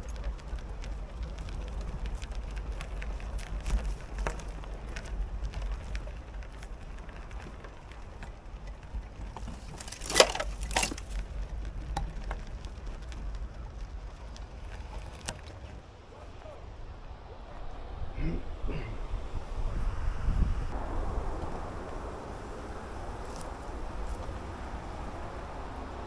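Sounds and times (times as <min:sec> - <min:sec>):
twigs snapping: 0:00.0 - 0:15.8
bicycle tyres on twigs and gravel: 0:00.0 - 0:26.0
wind rumble on microphone: 0:00.0 - 0:26.0.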